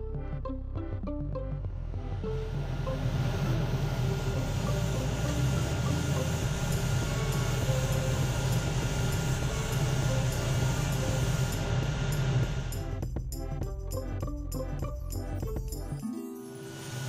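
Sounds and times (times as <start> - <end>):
extractor fan running: 2.0 - 13.1.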